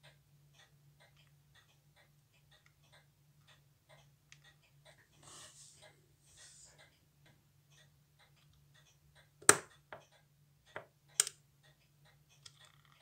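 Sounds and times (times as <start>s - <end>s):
small metal clicks: 9.6s - 13.0s.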